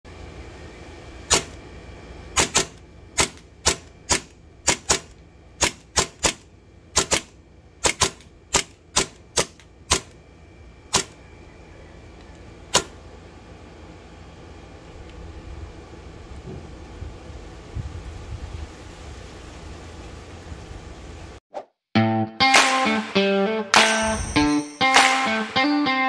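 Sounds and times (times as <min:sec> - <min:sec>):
airsoft pistol shots: 0:01.3 - 0:01.6, 0:02.4 - 0:06.4, 0:07.0 - 0:10.1.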